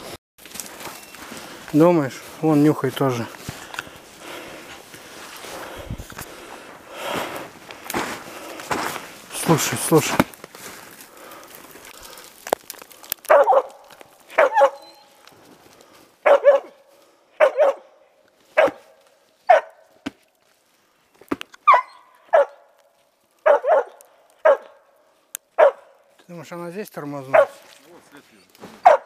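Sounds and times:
dog barking: 13.3 - 15.0, 16.2 - 16.8, 17.4 - 18.0, 18.6 - 19.9, 21.7 - 22.7, 23.4 - 24.9, 25.6 - 26.0, 27.3 - 27.6, 28.8 - 29.0.

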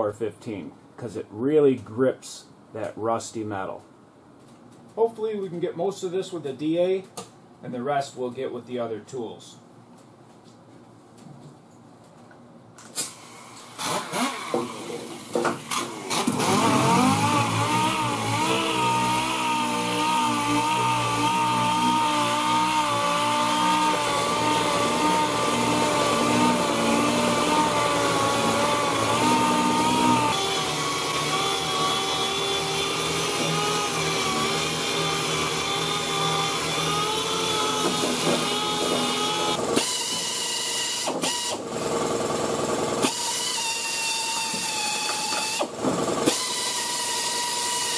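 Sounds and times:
pneumatic sander whining: 13.0 - 47.9.

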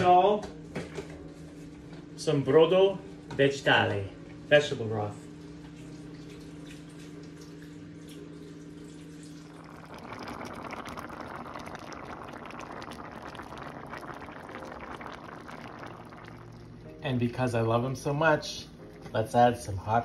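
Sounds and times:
sauce bubbling in a pan: 7.7 - 16.9.

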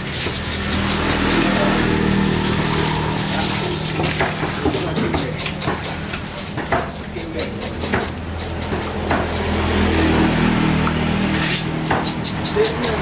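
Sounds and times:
loud noisy wash: 0.0 - 5.0.

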